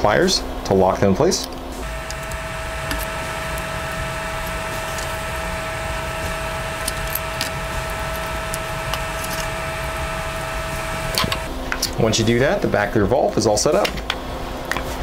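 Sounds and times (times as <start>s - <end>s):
machine humming with whine: 1.8s - 11.6s.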